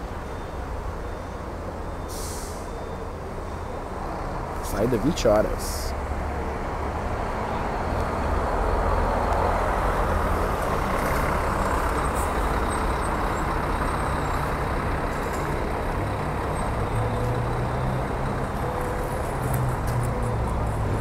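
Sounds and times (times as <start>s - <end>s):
bus diesel engine passing: 0.0s - 21.0s.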